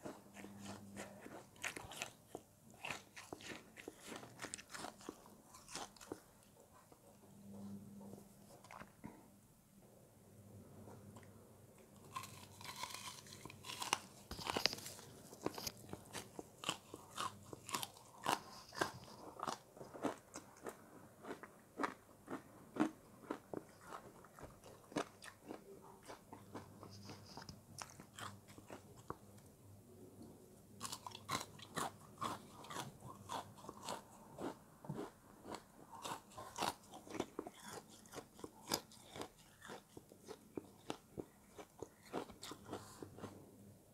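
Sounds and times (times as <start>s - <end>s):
person crunching ice: 12.2s - 19.1s.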